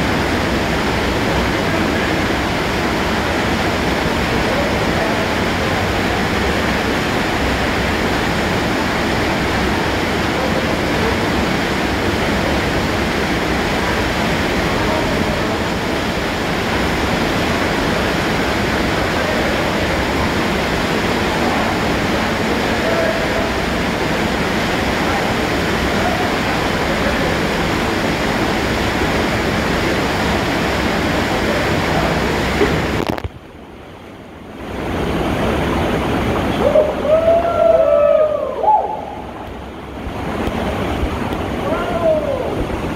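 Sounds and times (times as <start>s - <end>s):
waterfall rushing into pool: 0.0s - 42.9s
person shouting: 41.6s - 42.6s.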